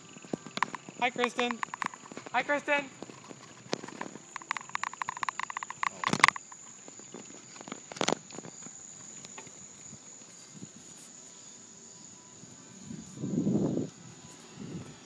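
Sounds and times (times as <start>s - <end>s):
rapid ticking: 0.0s - 9.4s
insects droning: 0.0s - 15.0s
sharp knocks: 0.4s - 2.4s, 3.7s - 6.6s.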